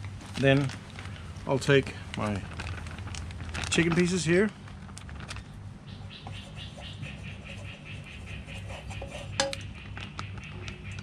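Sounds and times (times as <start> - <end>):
plastic bag rustling: 0.0 - 7.7.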